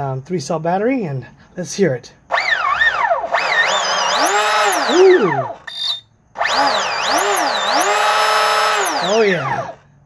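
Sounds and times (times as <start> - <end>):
electric motor whining: 2.3 - 9.8.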